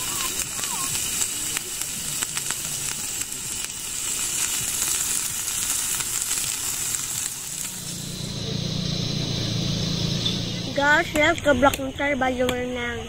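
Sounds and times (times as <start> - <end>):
meat sizzling on grill pan: 0.0 - 12.4
low hum: 5.4 - 12.2.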